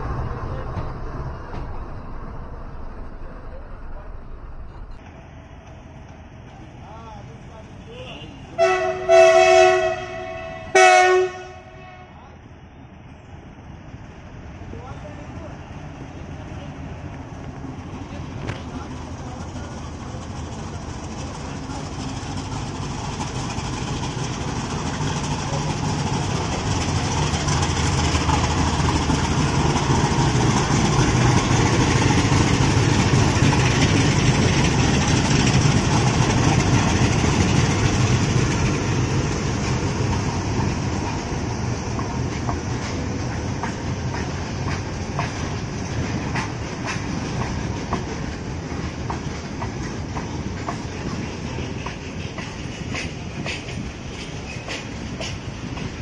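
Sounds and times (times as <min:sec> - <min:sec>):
diesel locomotives droning: 0:00.0 - 0:56.0
train wheels clicking over rail joints: 0:17.0 - 0:56.0.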